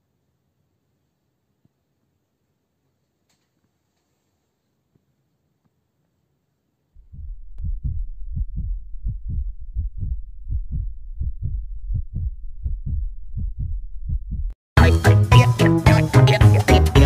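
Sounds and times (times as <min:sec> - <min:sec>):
heartbeat thuds: 0:07.0 - 0:14.6.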